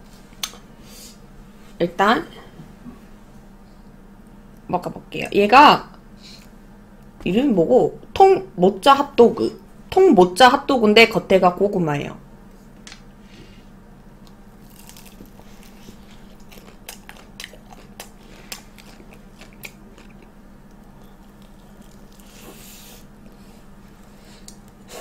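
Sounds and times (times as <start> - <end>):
faint low hum: 0.0 - 25.0
chewing: 14.2 - 24.8
crisp crackles of fried coating: 14.6 - 22.4.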